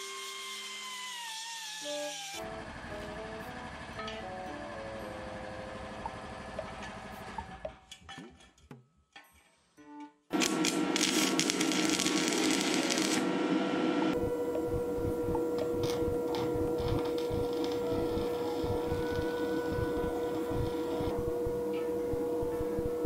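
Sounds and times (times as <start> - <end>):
arc welding crackling: 10.3 - 21.3.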